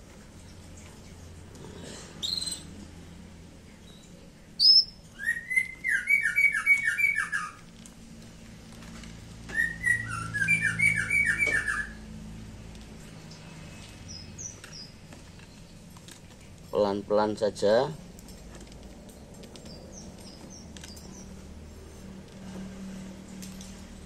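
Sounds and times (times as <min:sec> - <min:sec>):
songbird singing: 0:03.7 - 0:07.7, 0:09.5 - 0:12.0, 0:13.3 - 0:15.9, 0:19.0 - 0:21.5.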